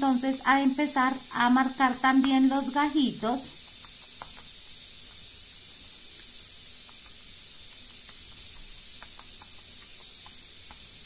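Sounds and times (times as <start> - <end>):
steady high hiss: 0.0 - 11.0.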